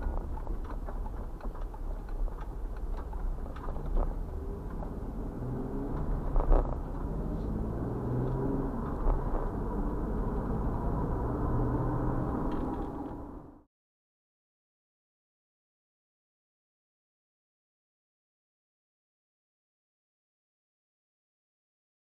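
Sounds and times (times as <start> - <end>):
wheels knocking over railroad tracks: 0.0 - 4.9
car engine and tyre rumble: 0.0 - 13.7.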